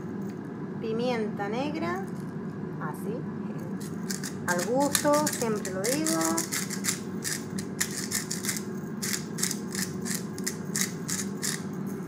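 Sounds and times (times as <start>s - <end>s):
pepper grinder crunching peppercorns: 3.7s - 11.8s.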